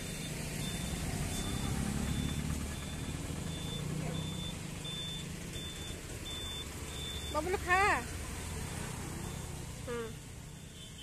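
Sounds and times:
faint high-pitched beep: 0:00.0 - 0:07.5
vehicle engine rumbling: 0:00.0 - 0:11.0.

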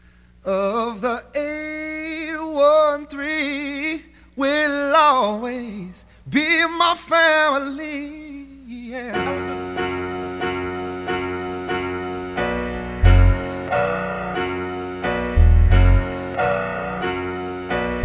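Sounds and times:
electric piano chords: 0:09.8 - 0:18.0
deep bass booms: 0:13.0 - 0:13.4, 0:15.4 - 0:16.1.

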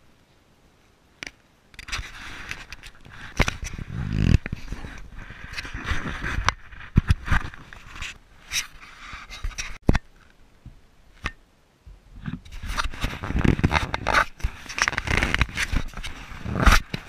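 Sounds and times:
fingers scraping and tapping camera: 0:01.2 - 0:10.1, 0:12.2 - 0:17.0.

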